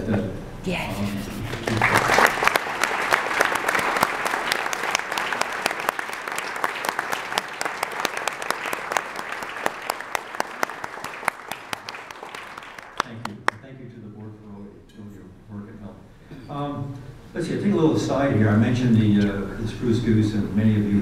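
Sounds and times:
audience applauding: 0:01.5 - 0:13.6.

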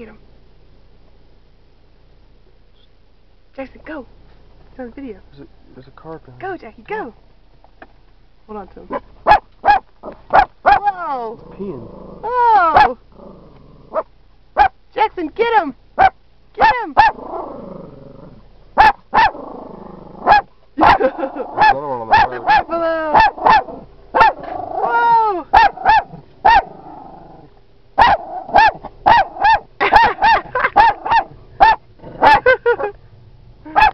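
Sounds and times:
dog barking: 0:08.9 - 0:11.0, 0:13.9 - 0:14.8, 0:16.0 - 0:17.2, 0:18.8 - 0:19.4, 0:20.2 - 0:24.5, 0:25.5 - 0:26.7, 0:28.0 - 0:32.8
dog yelping: 0:08.9 - 0:11.3, 0:12.2 - 0:13.0, 0:13.9 - 0:14.8, 0:16.0 - 0:17.4, 0:18.8 - 0:19.5, 0:20.2 - 0:27.0, 0:28.0 - 0:32.9, 0:33.7 - 0:33.9.

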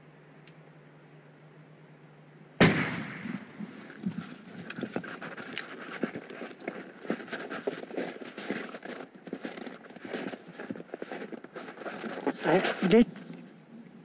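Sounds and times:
rifle shot: 0:02.6 - 0:03.6
crunching on snow and ice: 0:03.6 - 0:13.0.

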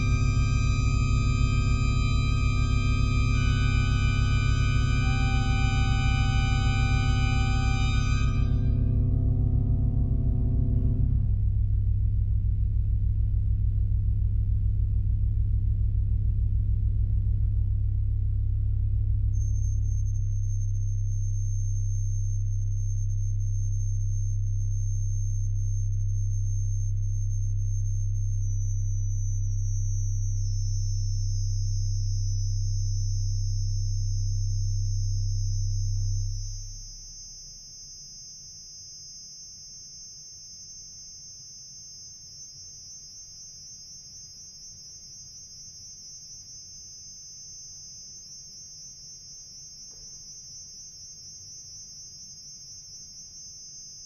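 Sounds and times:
pipe organ low drone: 0:00.0 - 0:23.6.

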